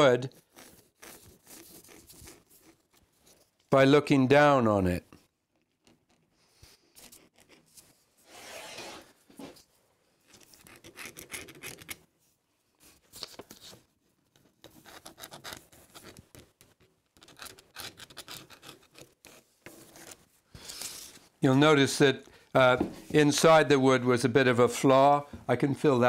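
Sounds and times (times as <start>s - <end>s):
pencil scratching on wood: 0.3s - 3.4s, 10.3s - 12.0s, 14.6s - 20.2s.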